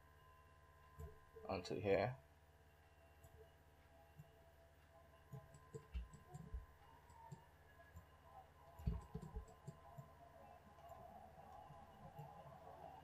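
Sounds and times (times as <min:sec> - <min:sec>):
faint steady hum: 0:00.0 - 0:13.0
computer mouse clicks and knocks: 0:05.3 - 0:08.1, 0:08.8 - 0:10.1.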